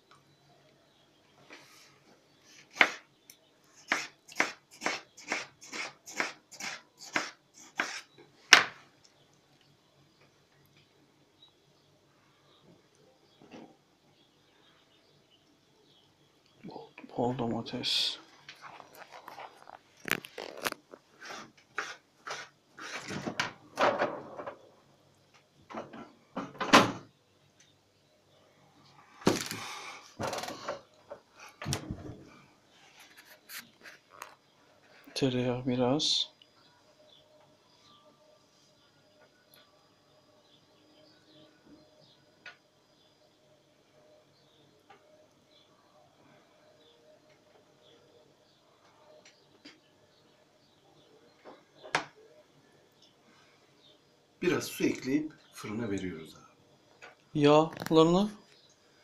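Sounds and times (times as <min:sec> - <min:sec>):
knife slicing tomato: 0:02.7 - 0:03.0, 0:03.8 - 0:08.1.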